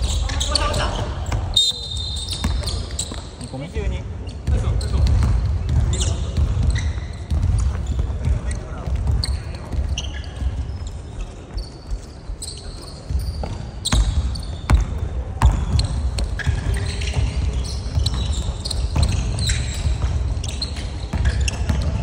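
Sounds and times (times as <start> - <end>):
sneaker squeaks: 0.0 - 22.0
basketball bouncing on hardwood: 4.4 - 10.7, 13.1 - 22.0.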